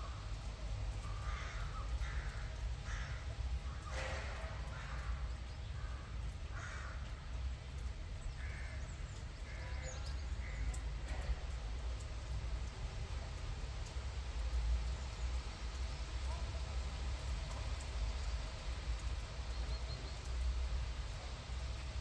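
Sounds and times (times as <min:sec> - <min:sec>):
crow cawing: 0:01.0 - 0:07.3, 0:08.3 - 0:10.9.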